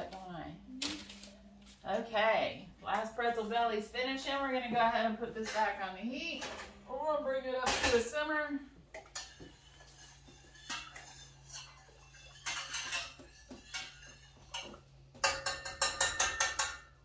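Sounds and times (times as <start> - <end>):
metal pot and utensils clinking: 5.4 - 6.8, 7.5 - 17.0.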